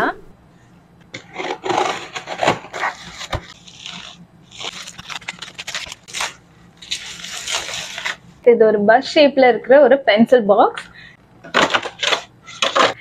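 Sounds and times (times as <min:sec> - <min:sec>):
box cutter slicing cardboard: 0:01.2 - 0:08.2
bubble wrap crinkling: 0:01.3 - 0:08.3.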